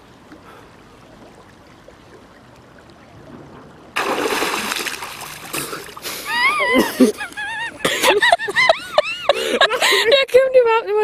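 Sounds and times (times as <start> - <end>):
water lapping: 0.0 - 10.3
loud water splash: 3.3 - 6.7.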